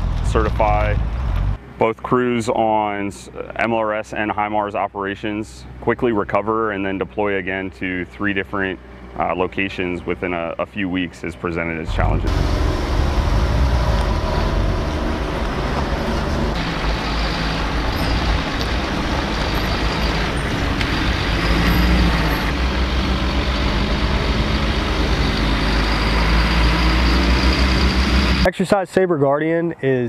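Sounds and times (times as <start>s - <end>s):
diesel engines rumbling: 0.0s - 29.1s
heavy trucks driving past: 6.8s - 28.5s.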